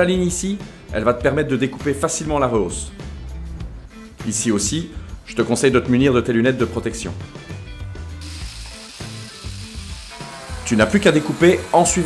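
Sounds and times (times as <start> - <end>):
angle grinder motor hiss: 8.1 - 12.0.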